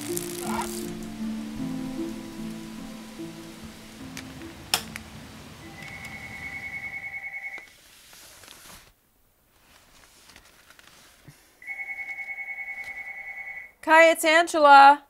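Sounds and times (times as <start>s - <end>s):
telephone ringing: 5.6s - 7.7s, 11.6s - 13.8s.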